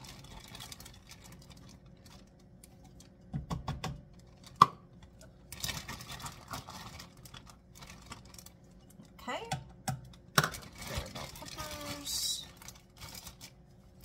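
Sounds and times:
plastic bag crinkling: 0:00.0 - 0:02.6, 0:05.4 - 0:08.8, 0:10.4 - 0:14.0.

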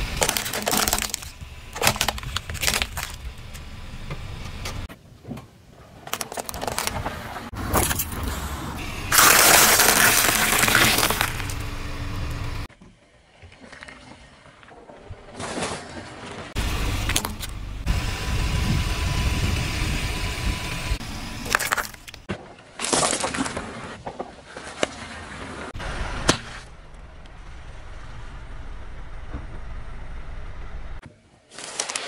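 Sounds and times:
objects cracking and crunching: 0:00.0 - 0:03.7, 0:06.0 - 0:08.1, 0:09.1 - 0:11.7, 0:21.5 - 0:24.3
car tyre rolling on asphalt: 0:00.0 - 0:04.9, 0:05.8 - 0:22.3, 0:23.4 - 0:31.0.

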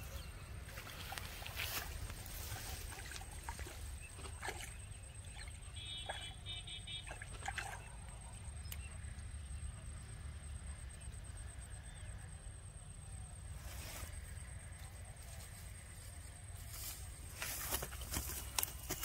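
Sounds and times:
hands rustling grass: 0:00.0 - 0:03.4, 0:14.8 - 0:19.0.

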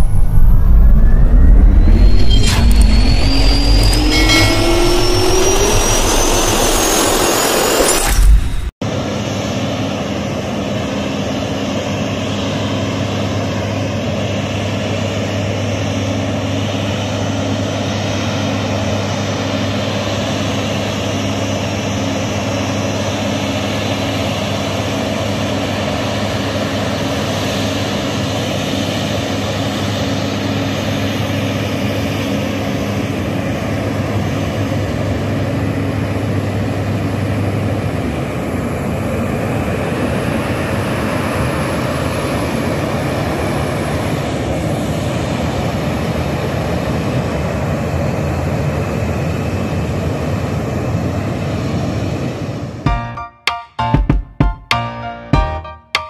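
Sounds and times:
jet engine idling: 0:00.0 - 0:15.3.

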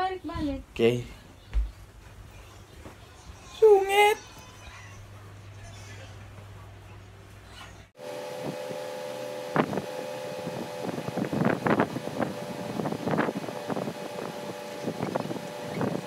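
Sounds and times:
steady hum: 0:00.0 - 0:16.0
wind noise on microphone: 0:09.5 - 0:16.0.

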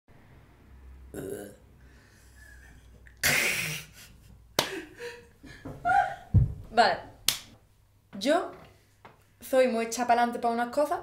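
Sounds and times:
woman burping: 0:01.1 - 0:01.6
woman laughing: 0:03.9 - 0:06.4.

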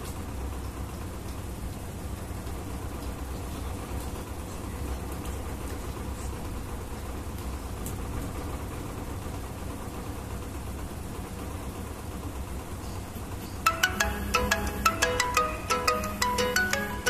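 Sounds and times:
aquarium filter humming: 0:13.6 - 0:17.0
bell-like background music: 0:13.7 - 0:17.0.

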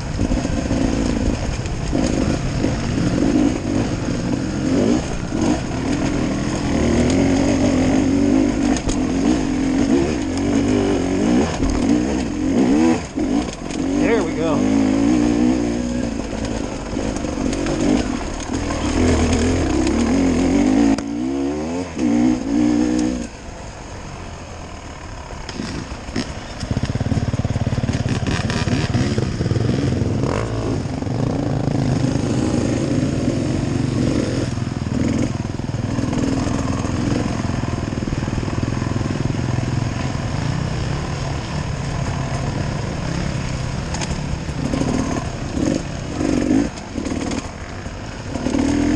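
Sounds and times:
dirt bike engine revving: 0:00.0 - 0:23.3, 0:25.4 - 0:48.9.

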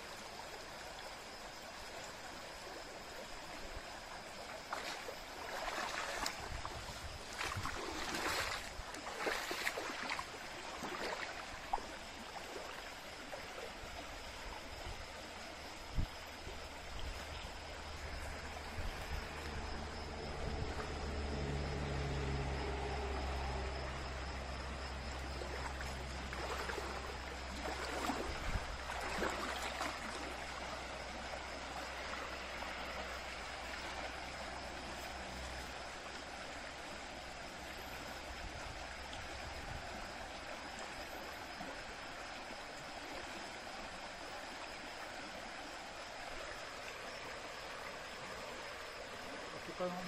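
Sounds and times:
stream running over stones: 0:00.0 - 0:50.0
low hum: 0:16.6 - 0:29.0.

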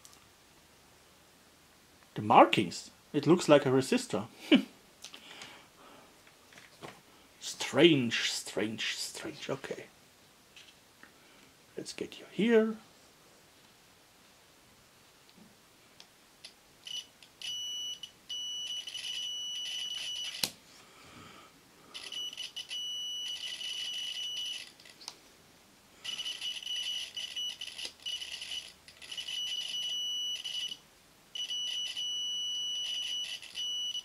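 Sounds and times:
continuity tester beeping: 0:16.9 - 0:20.4, 0:22.0 - 0:24.7, 0:26.0 - 0:30.8, 0:31.4 - 0:34.0.

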